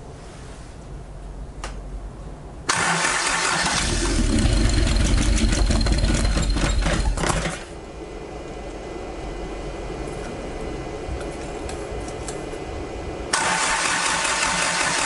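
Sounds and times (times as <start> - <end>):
engine cranking and running rough: 2.7 - 7.7, 13.3 - 15.0.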